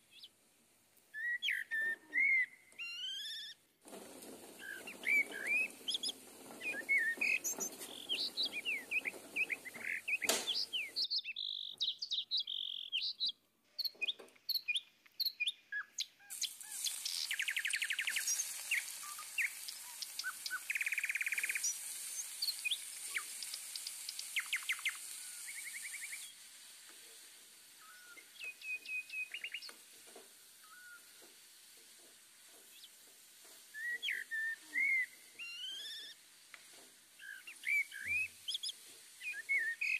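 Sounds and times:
onions sizzling in hot oil: 0.0 - 13.0, 16.3 - 39.9
birds chirping and trilling: 1.2 - 26.3.

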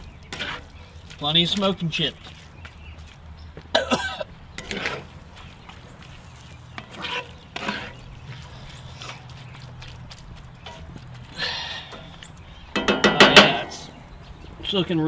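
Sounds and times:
spatula scraping skillet: 0.3 - 0.8, 4.6 - 9.0.

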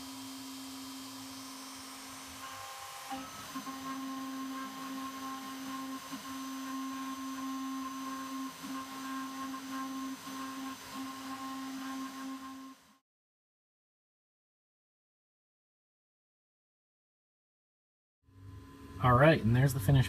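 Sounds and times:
router spindle whine: 0.0 - 13.0.

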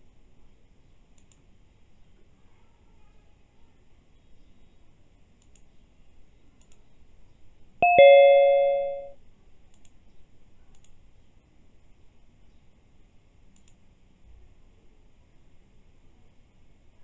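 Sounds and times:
two-note chime: 7.8 - 9.2.

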